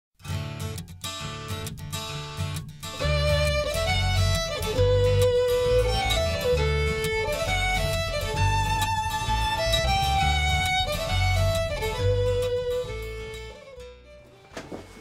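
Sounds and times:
strummed acoustic guitar: 0:00.2 - 0:15.0
fiddle playing lively melody: 0:02.4 - 0:15.0.

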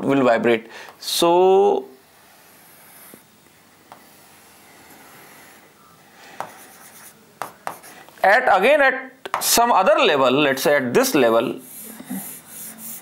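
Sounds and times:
pen tapping on board: 0:06.4 - 0:06.6, 0:07.4 - 0:07.8
stylus scraping on writing board: 0:06.4 - 0:08.0, 0:11.7 - 0:13.0.

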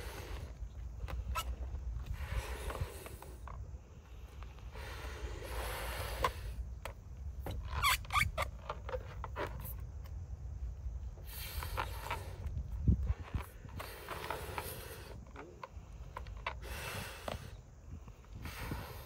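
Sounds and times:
wind rumble on microphone: 0:00.0 - 0:19.0
breaths blowing up balloons: 0:04.2 - 0:06.7, 0:11.2 - 0:19.0
balloon rubber squeaking: 0:07.5 - 0:09.7.

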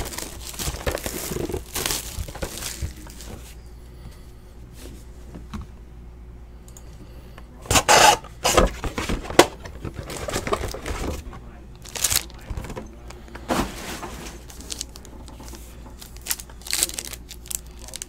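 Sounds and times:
trading cards rustling: 0:00.0 - 0:03.5, 0:07.7 - 0:12.8, 0:14.0 - 0:18.0
cards scraping: 0:07.7 - 0:12.4.

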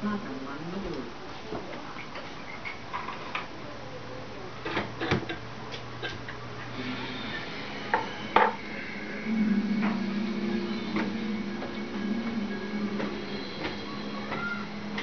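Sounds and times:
low steady hum: 0:03.6 - 0:15.0.

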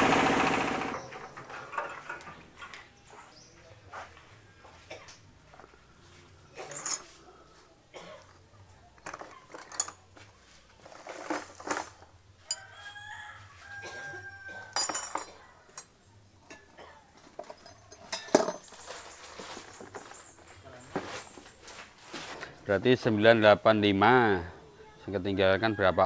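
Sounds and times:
rice scooped in metal basins: 0:01.0 - 0:24.5
rooster crowing: 0:12.4 - 0:14.8, 0:25.4 - 0:26.0.

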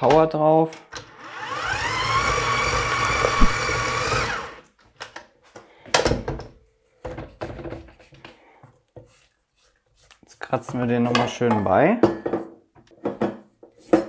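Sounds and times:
stand mixer motor whining: 0:01.1 - 0:04.6.

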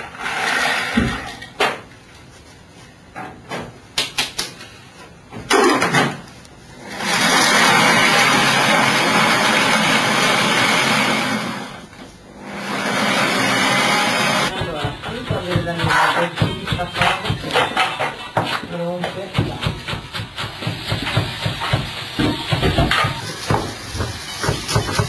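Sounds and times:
stand mixer motor running: 0:07.0 - 0:11.6
utensils clinking against bowl: 0:14.6 - 0:20.5.

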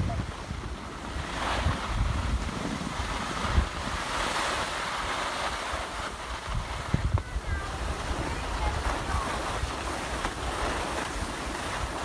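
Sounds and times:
skis scraping over snow: 0:00.0 - 0:12.0
wind buffeting microphone: 0:00.0 - 0:12.0.

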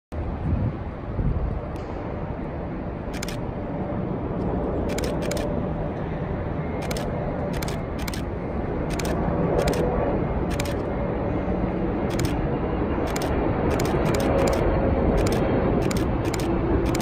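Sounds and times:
distant jet engine rumble: 0:00.1 - 0:17.0
camera shutter clicks: 0:03.1 - 0:03.4, 0:04.9 - 0:05.5, 0:06.8 - 0:08.3, 0:08.9 - 0:09.8, 0:10.5 - 0:10.8, 0:12.1 - 0:12.4, 0:13.0 - 0:14.6, 0:15.2 - 0:17.0.

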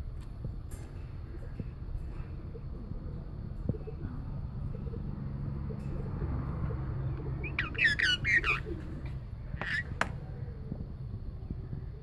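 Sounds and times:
steady low hum: 0:00.0 - 0:12.0
parakeet chirping squawks: 0:07.4 - 0:08.8, 0:09.6 - 0:10.0.

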